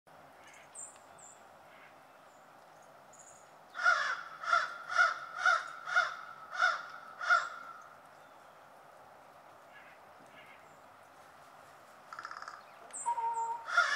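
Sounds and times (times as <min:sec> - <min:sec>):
crow cawing: 0:03.8 - 0:07.8, 0:12.1 - 0:13.9.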